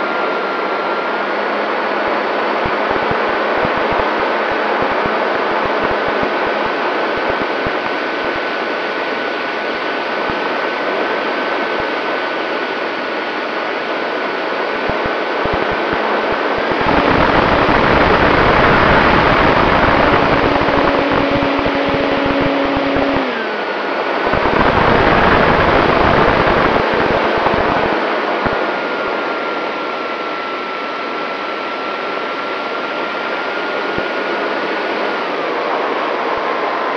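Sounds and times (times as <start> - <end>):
electric motor whine: 2.6 - 8.4, 14.8 - 28.6
wind rushing over microphone: 14.9 - 23.3, 24.2 - 28.6.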